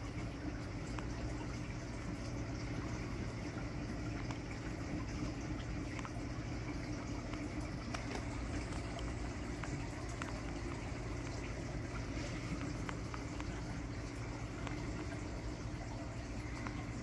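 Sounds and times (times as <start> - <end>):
water bubbling and trickling: 0.0 - 17.0
faint ticks: 0.2 - 17.0
low hum: 4.9 - 17.0.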